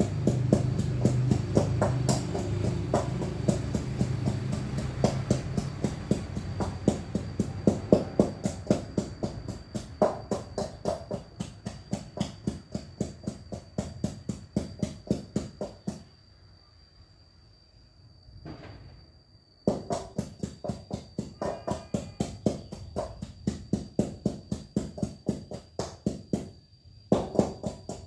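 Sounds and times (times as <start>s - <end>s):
music with steady drum beat: 0.0s - 10.0s.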